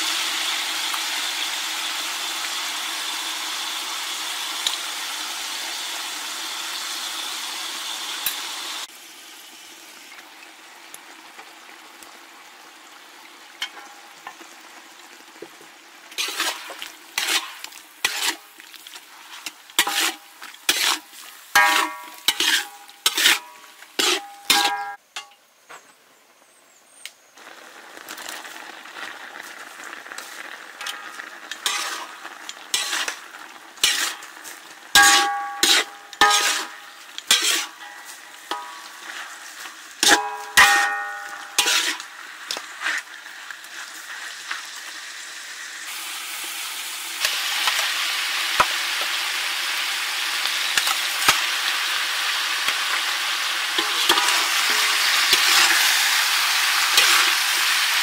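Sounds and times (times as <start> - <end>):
meat sizzling in a wok: 0.0 - 25.0, 27.4 - 58.0
spatula scraping a metal pan: 16.1 - 25.0, 30.8 - 33.2, 33.8 - 34.3, 34.9 - 43.1, 53.8 - 56.0, 56.8 - 57.5.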